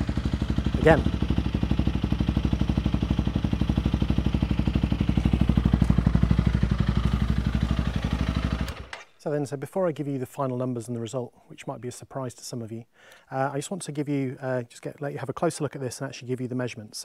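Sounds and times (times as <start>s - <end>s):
motorcycle engine idling: 0.0s - 9.0s.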